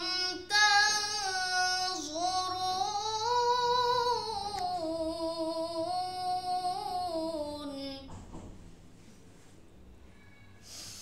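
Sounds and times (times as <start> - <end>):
boy chanting melodically: 0.0 - 8.1.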